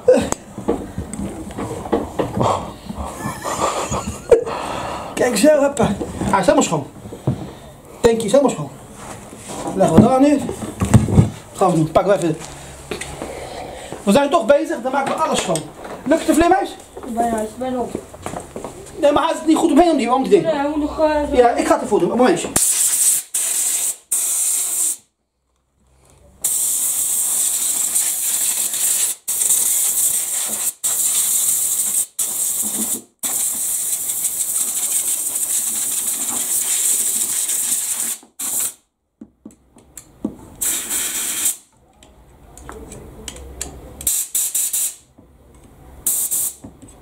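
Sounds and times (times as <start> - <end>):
air blow gun hissing: 22.6 - 25.0, 26.4 - 38.8, 40.6 - 41.6.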